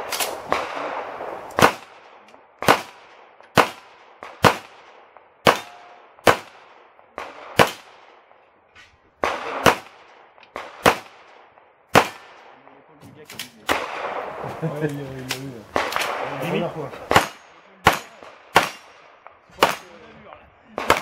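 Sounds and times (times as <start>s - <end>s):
handgun shots echoing: 0.0s - 8.0s, 9.2s - 11.3s, 11.9s - 12.4s, 15.2s - 20.0s.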